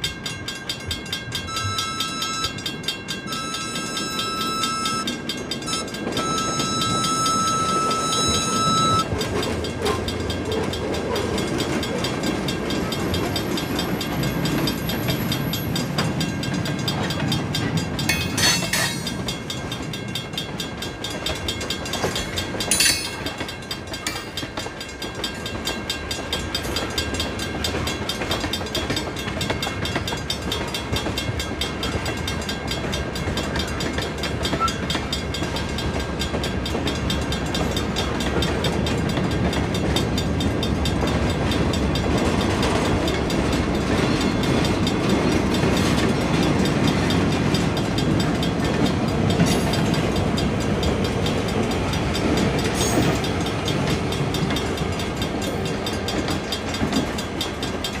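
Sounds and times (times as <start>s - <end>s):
crossing bell ringing: 0.0s - 58.0s
train wheels clicking over rail joints: 0.0s - 58.0s
diesel locomotive rumble: 0.8s - 24.9s.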